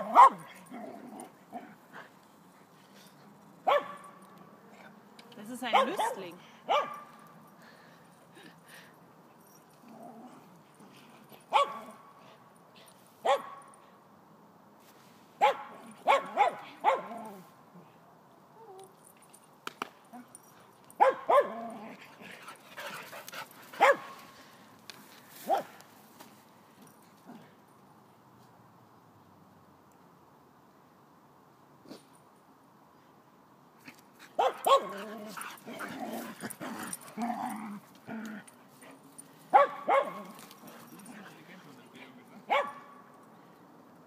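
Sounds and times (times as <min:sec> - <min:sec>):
dog barking: 0:00.0 - 0:00.4, 0:03.7 - 0:04.0, 0:05.7 - 0:07.1, 0:13.3 - 0:13.6, 0:15.4 - 0:17.1, 0:21.0 - 0:21.6, 0:23.8 - 0:24.2, 0:34.4 - 0:35.0, 0:39.5 - 0:40.2, 0:42.5 - 0:43.0.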